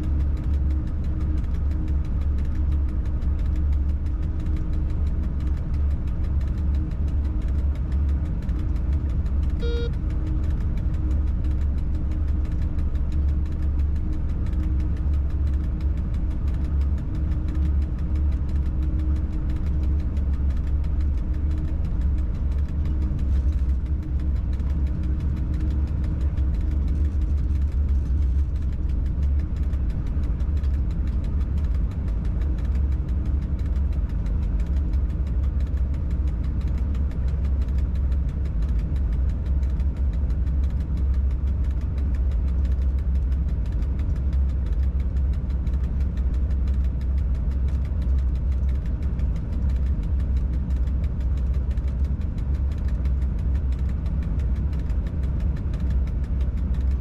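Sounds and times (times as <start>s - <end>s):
locomotive rumble and hum: 0.0s - 57.0s
short beep: 9.6s - 9.9s.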